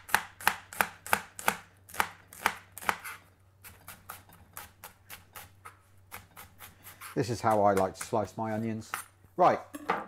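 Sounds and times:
knife slicing onion on board: 0.0 - 9.1.

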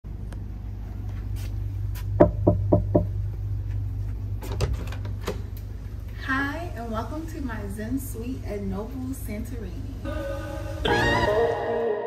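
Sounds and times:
steady low hum: 0.1 - 11.6
knocks on a door: 2.2 - 3.2.

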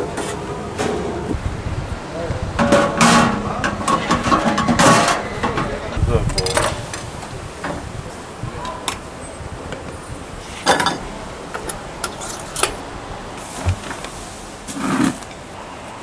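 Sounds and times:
knocks and clatters at food stall: 0.0 - 1.5, 2.4 - 9.1, 10.6 - 12.9, 13.5 - 15.3
steady background noise: 0.0 - 16.0.

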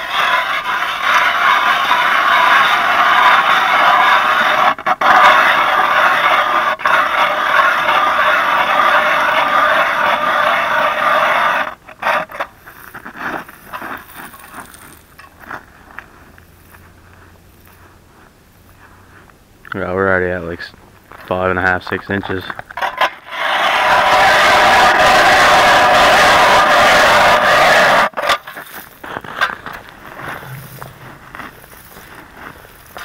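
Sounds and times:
ice auger grinding through ice: 0.0 - 15.2, 22.8 - 33.0
faint scrapes and knocks: 28.2 - 33.0.

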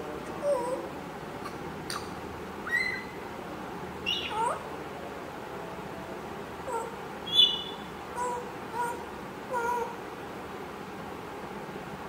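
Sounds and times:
parrot whistles and squeaky calls: 1.9 - 3.2, 4.0 - 4.6, 7.2 - 7.9.

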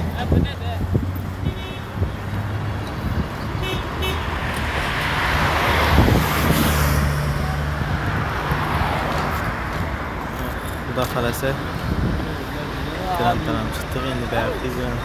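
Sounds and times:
road noise: 0.0 - 15.0
motor vehicle passing: 0.8 - 10.8.

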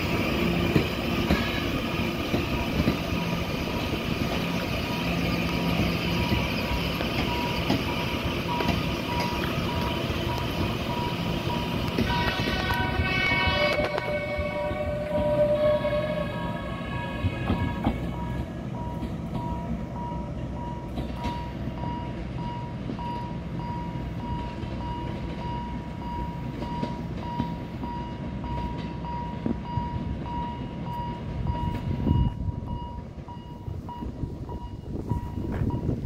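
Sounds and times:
low rumble of trains: 0.0 - 36.0
train horn: 11.9 - 18.3
higher horn note: 12.0 - 17.8.

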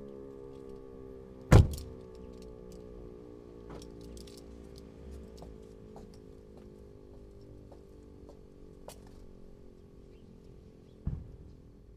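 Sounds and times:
faint siren sliding down: 0.0 - 6.9.

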